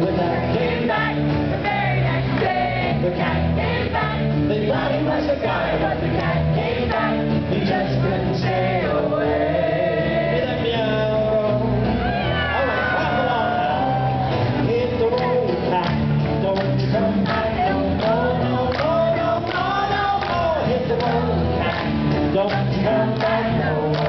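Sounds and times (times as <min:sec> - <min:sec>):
man singing into a microphone: 0:00.0 - 0:01.2, 0:04.5 - 0:06.1, 0:07.4 - 0:21.4, 0:22.3 - 0:24.0.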